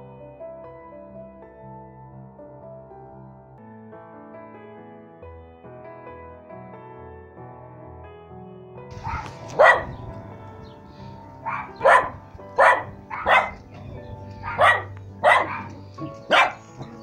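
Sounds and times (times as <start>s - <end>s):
background music with held notes: 0.0s - 17.0s
dog barking: 8.9s - 17.0s.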